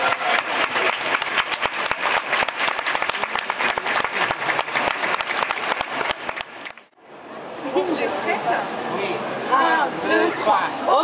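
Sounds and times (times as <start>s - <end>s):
large crowd applauding: 0.0s - 7.0s.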